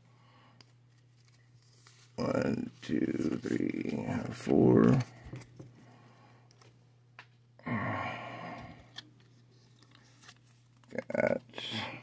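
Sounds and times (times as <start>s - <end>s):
man sighing: 7.6s - 9.0s.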